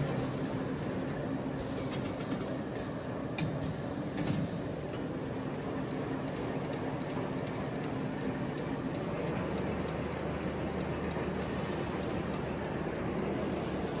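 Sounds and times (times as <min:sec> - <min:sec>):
steady machine hum: 0:00.0 - 0:14.0
faint machine clicks: 0:03.3 - 0:13.8.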